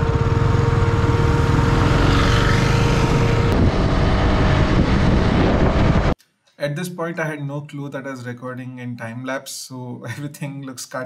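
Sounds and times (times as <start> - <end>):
motorcycle engine running: 0.0 - 6.2
steady whine: 0.0 - 6.2
wind rushing over microphone: 0.8 - 6.2.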